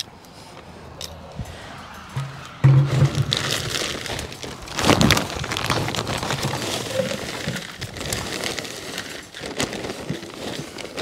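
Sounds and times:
soil pouring: 2.8 - 11.0
plastic bag crinkling: 2.9 - 11.0.

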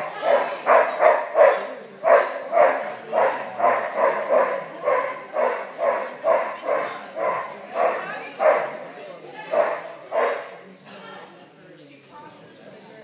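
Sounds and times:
dog barking: 0.1 - 8.8, 9.5 - 10.5.

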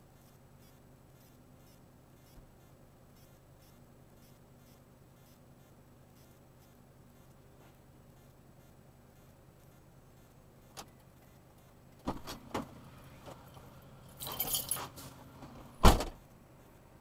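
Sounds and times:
metallic jingling rattle: 14.1 - 15.0
heavy thump: 15.8 - 16.2.

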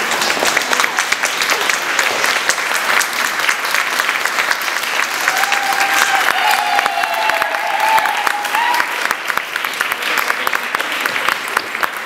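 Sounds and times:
audience applauding: 0.0 - 12.0
long high call from crowd: 5.1 - 9.2.

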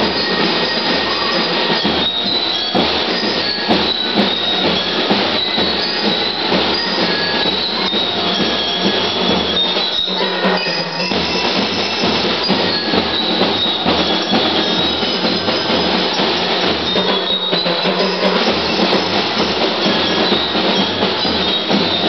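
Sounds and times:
bell lyres ringing: 0.0 - 22.0
steady drum beat: 0.0 - 22.0.

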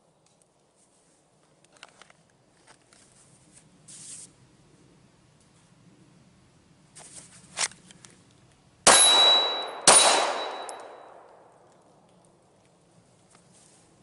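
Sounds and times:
pistol shots echoing: 8.8 - 11.7
high steady ring: 8.9 - 11.2
pistol being drawn: 8.9 - 11.7.

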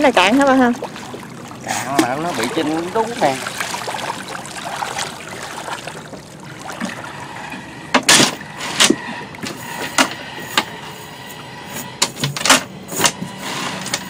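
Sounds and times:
knocks and clatters in boat: 0.0 - 11.0, 11.8 - 14.0.

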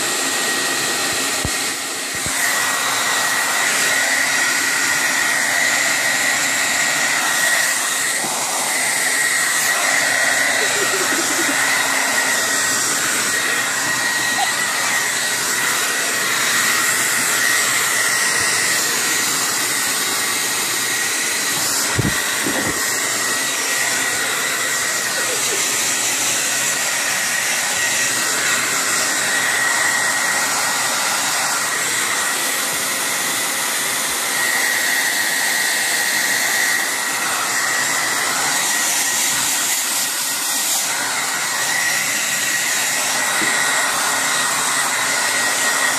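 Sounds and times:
hair dryer running: 0.0 - 45.9.

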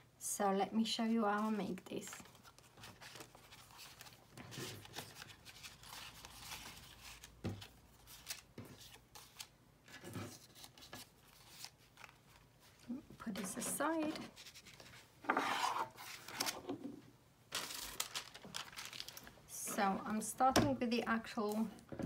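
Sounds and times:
paper rustling: 1.4 - 16.8, 17.5 - 19.4.

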